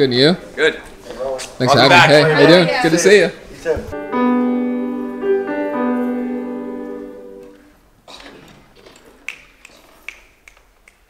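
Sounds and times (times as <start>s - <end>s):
piano chords: 3.9s - 7.9s.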